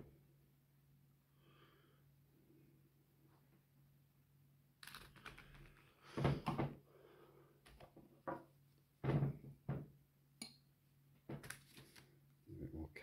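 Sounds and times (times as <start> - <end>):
faint steady hum: 0.0 - 8.0
paint tubes clunking and rustling: 5.6 - 6.8, 11.2 - 12.0.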